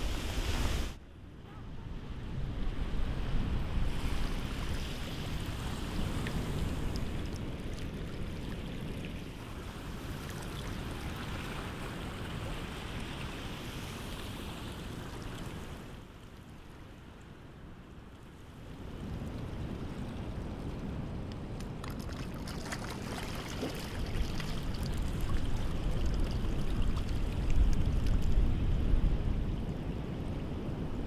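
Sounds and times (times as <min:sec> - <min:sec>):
seawater washing over sand and rock: 0:21.6 - 0:28.5.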